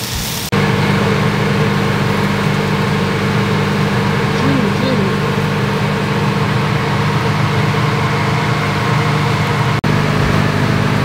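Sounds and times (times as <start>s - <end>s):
even hiss: 0.0s - 0.5s
mechanical motor hum: 0.5s - 11.0s.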